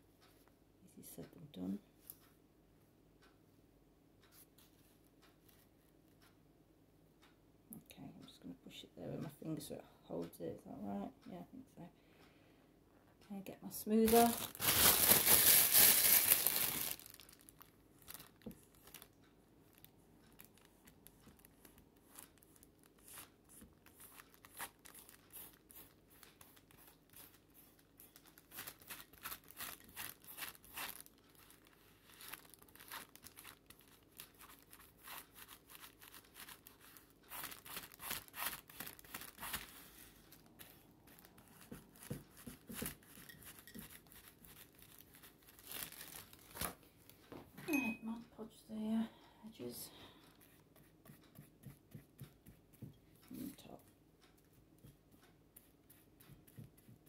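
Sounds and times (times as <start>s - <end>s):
soft rustling of plastic: 13.7s - 47.6s
plastic crinkling: 14.0s - 47.2s.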